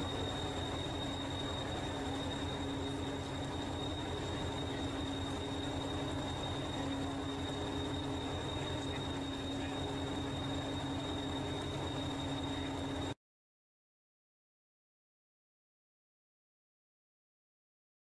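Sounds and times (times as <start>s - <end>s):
constant hum: 0.0s - 13.2s.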